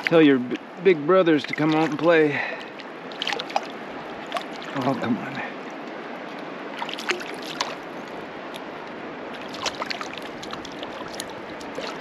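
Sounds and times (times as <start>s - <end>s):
river water rushing: 0.0s - 12.0s
small splashes and clicks: 1.4s - 4.9s, 5.8s - 8.7s, 9.4s - 12.0s.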